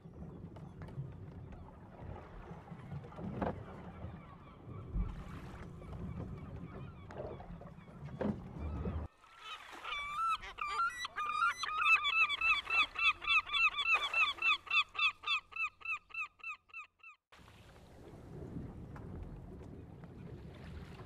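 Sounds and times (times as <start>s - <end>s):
birds yelping calls: 8.6s - 17.2s.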